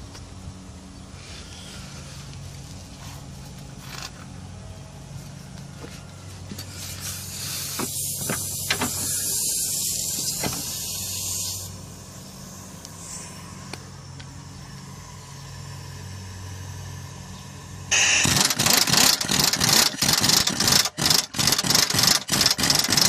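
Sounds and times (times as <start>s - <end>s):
pneumatic impact wrench air hiss: 6.6s - 13.7s, 17.9s - 23.0s
impact wrench sharp clicks: 17.9s - 23.0s.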